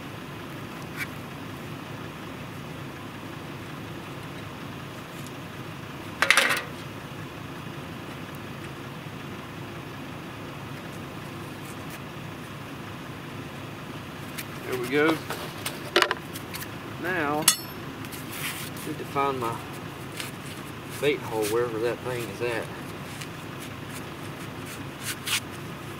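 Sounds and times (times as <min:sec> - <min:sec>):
low background hum: 0:00.0 - 0:25.9
metal clatter: 0:06.2 - 0:06.8, 0:17.4 - 0:17.8.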